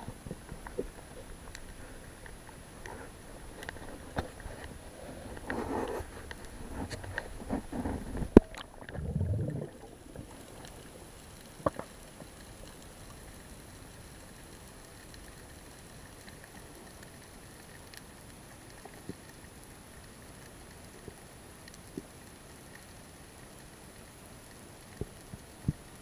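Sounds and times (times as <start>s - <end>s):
underwater rumbling rush: 0.0s - 13.5s
faint steady hiss: 0.0s - 26.0s
underwater clicks: 6.2s - 10.8s.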